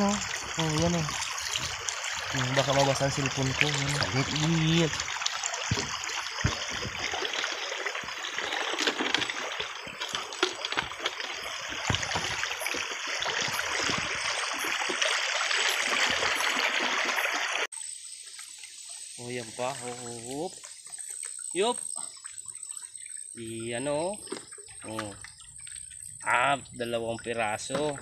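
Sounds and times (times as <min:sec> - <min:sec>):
stream water rushing: 0:00.0 - 0:17.7
small splashes from wading: 0:00.0 - 0:26.3.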